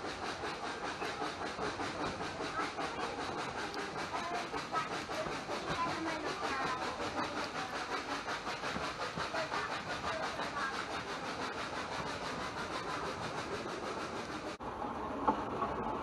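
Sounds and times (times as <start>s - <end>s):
train wheels rattling over track: 0.0s - 16.0s.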